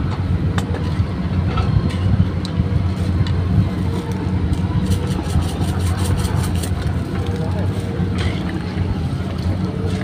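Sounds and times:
steady low drone: 0.0 - 10.0.

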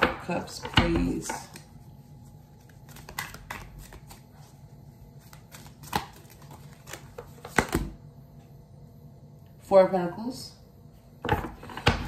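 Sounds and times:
cards being shuffled: 1.2 - 7.9.

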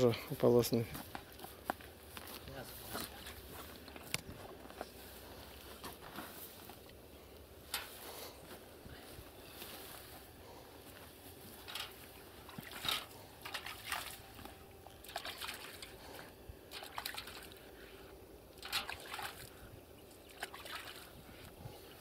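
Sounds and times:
water sloshing in a bucket: 2.8 - 4.2, 11.6 - 22.0.

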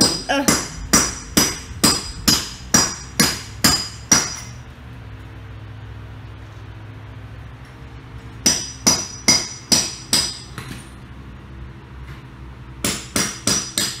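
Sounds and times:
hammer striking metal: 0.0 - 4.6, 8.4 - 10.6, 12.8 - 14.0
low steady hum: 0.0 - 14.0.

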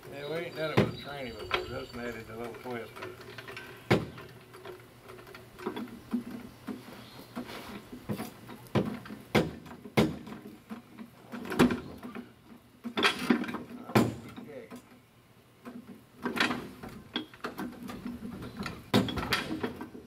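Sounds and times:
metal knocks and clanks: 15.7 - 20.0.

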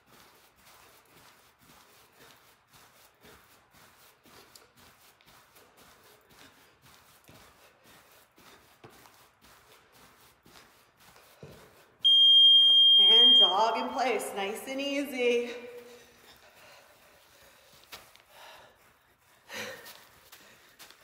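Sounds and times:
soft footfalls on artificial turf: 0.0 - 12.6, 16.0 - 21.0.

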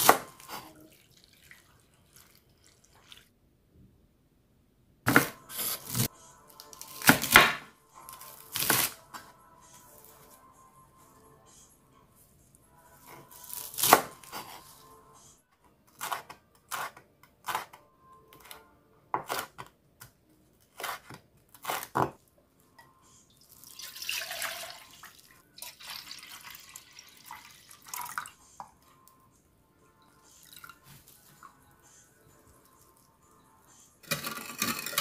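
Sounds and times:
liquid pouring into plastic jug: 23.6 - 28.3.

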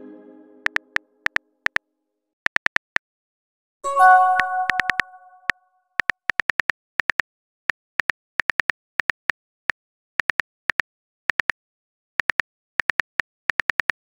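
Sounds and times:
phone keyboard typing clicks: 4.2 - 7.2, 12.2 - 14.0.

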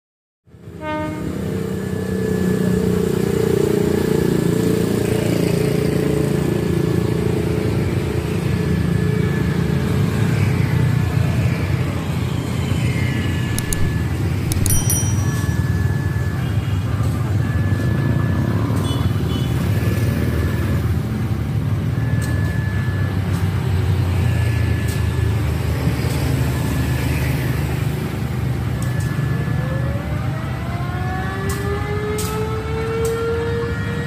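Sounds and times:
sharp clicks: 13.5 - 15.5
short high beeps: 13.5 - 16.3.

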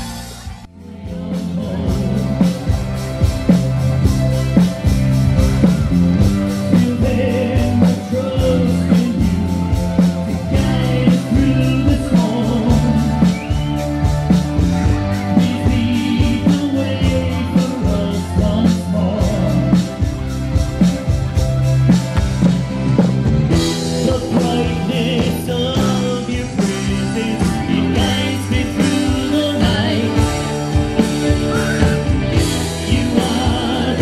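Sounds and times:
drum kit steady beat: 0.0 - 34.0
live rock band playing: 0.0 - 34.0
people singing: 0.7 - 3.5, 6.5 - 13.7, 15.2 - 20.0, 23.9 - 34.0.

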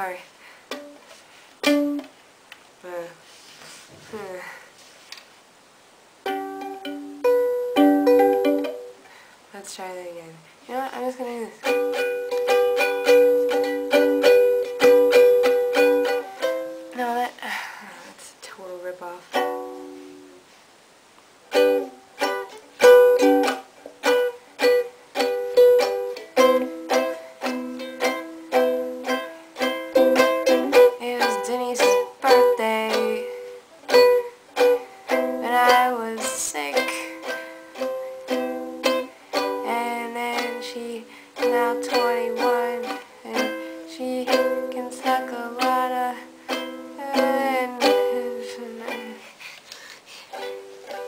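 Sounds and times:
ukulele strummed in chords: 1.6 - 2.1, 6.3 - 9.0, 11.6 - 17.2, 19.3 - 20.3, 21.5 - 49.3, 50.3 - 51.0.

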